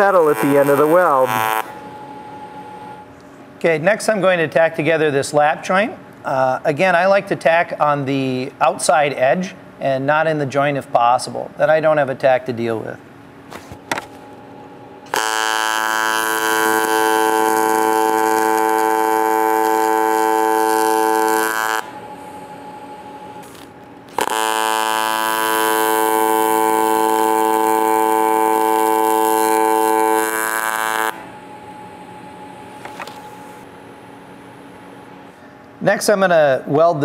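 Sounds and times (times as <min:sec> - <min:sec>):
welding arc buzzing: 0:00.0 - 0:03.1, 0:13.5 - 0:34.2.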